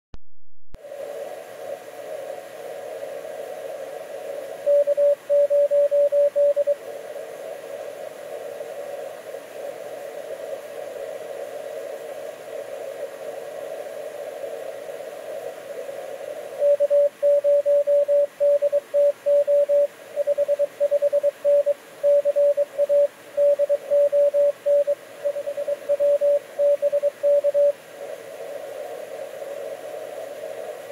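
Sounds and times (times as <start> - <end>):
radio receiver hiss: 0.8 - 30.9
morse code tone: 4.7 - 6.8, 16.6 - 27.7.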